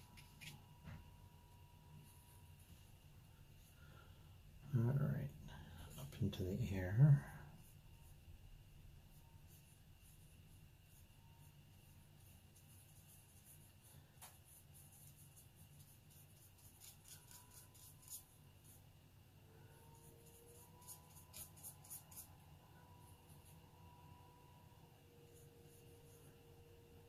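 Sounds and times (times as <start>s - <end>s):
low room hum: 0.0s - 27.0s
brush scratching on paper: 7.5s - 8.4s, 9.0s - 18.9s, 19.8s - 22.5s, 25.2s - 26.4s.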